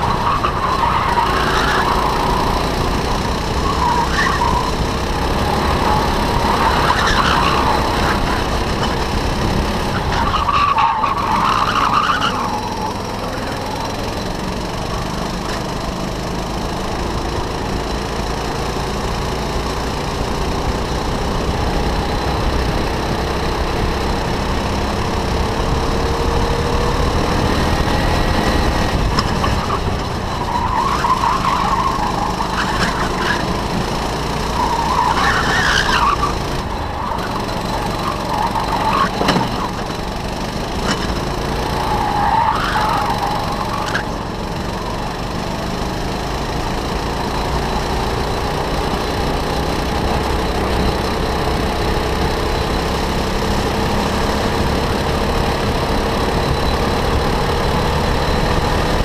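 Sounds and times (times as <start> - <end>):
go-kart engine: 0.0 - 59.0
tyres squealing: 3.6 - 4.8, 5.4 - 9.0, 29.2 - 44.3.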